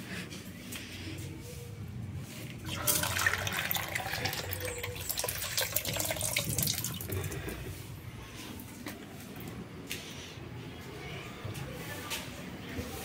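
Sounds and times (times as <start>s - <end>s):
water running from a tap: 2.7s - 7.2s.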